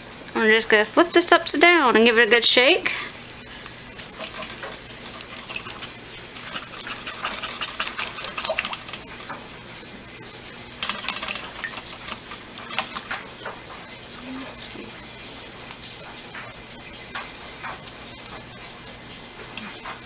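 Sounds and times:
jar shaken in cloth bag: 4.1s - 9.2s, 10.8s - 13.2s.

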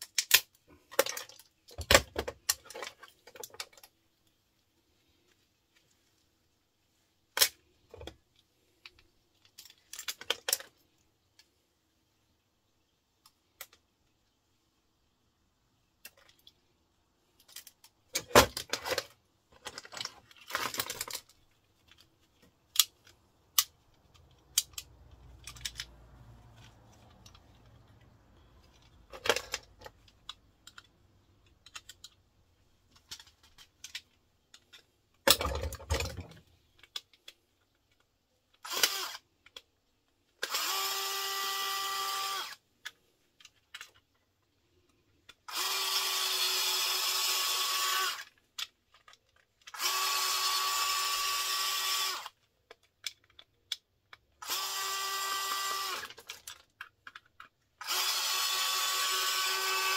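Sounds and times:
plastic parts and tools clattering: 0.0s - 4.4s, 7.3s - 11.6s, 15.9s - 40.7s, 42.4s - 45.6s, 48.2s - 50.1s, 52.3s - 54.4s, 55.8s - 58.0s
power screwdriver whining: 38.6s - 39.2s, 40.4s - 42.6s, 45.5s - 48.3s, 49.7s - 52.3s, 54.4s - 56.2s, 57.8s - 59.9s.

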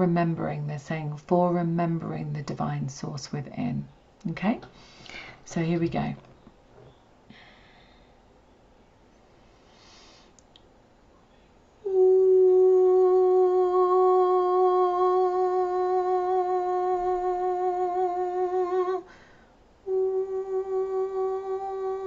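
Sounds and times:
woman breathing: 4.7s - 5.5s, 7.3s - 8.4s, 9.5s - 10.4s, 19.0s - 19.7s
woman singing long held note: 11.8s - 19.1s, 19.8s - 22.0s.

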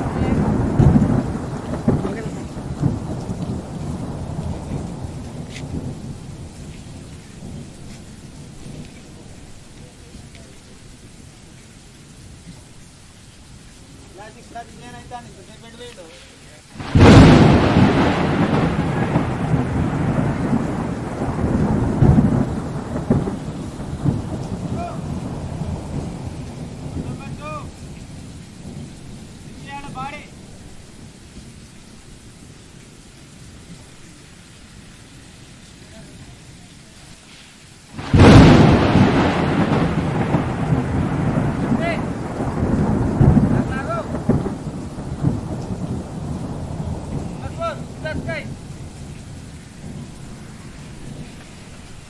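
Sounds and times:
thunder rumbling: 0.0s - 11.6s, 16.8s - 32.6s, 37.9s - 52.0s.

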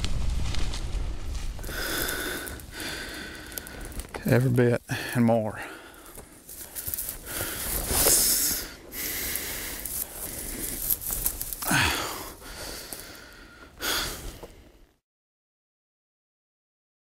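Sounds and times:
steady hiss: 0.0s - 14.2s
man breathing heavily: 1.6s - 14.9s.

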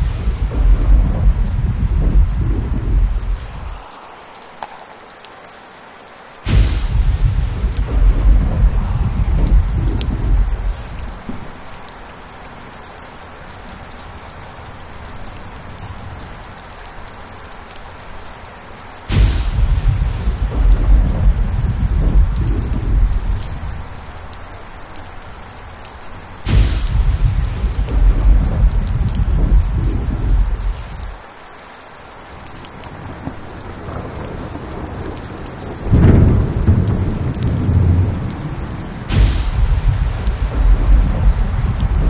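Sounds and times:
thunder crack and rumble: 0.0s - 4.8s, 6.4s - 11.9s, 19.1s - 24.6s, 25.8s - 31.2s, 32.7s - 42.0s
heavy rain: 0.0s - 42.0s.

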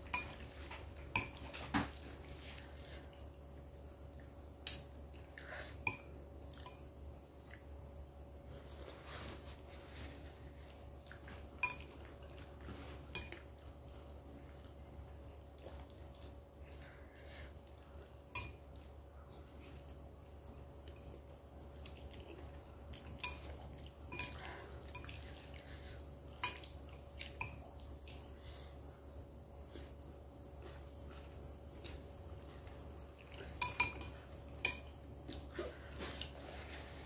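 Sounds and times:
utensils clinking on ceramic bowl: 33.5s - 35.0s.

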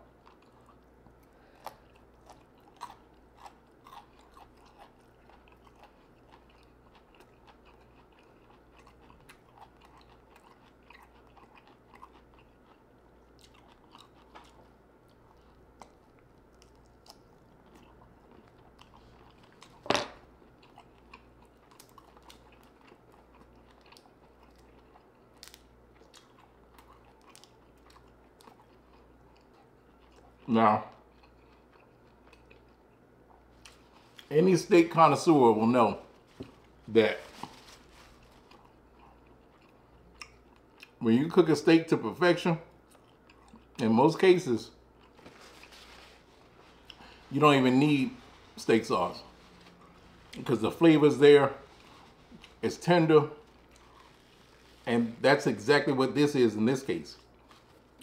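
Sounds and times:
chewing with wet mouth smacks: 0.0s - 19.8s, 20.4s - 34.3s, 38.0s - 41.0s, 42.7s - 43.8s, 53.4s - 54.8s.

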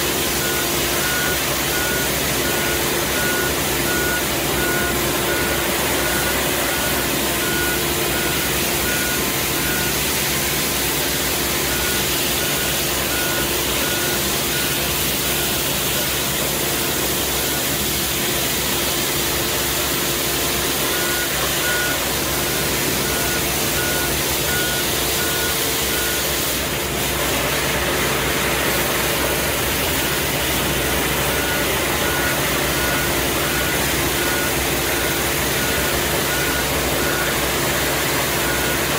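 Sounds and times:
street sweeper engine humming: 0.0s - 38.9s.

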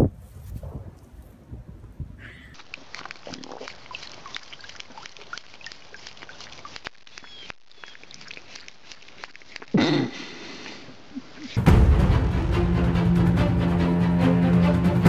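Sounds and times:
goat lapping water: 2.5s - 11.6s.

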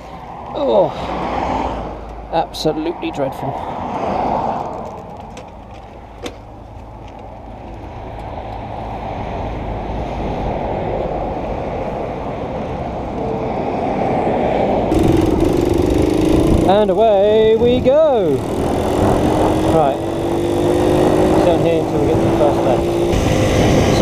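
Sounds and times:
wind on microphone: 14.2s - 24.0s
moped engine running: 14.9s - 24.0s.

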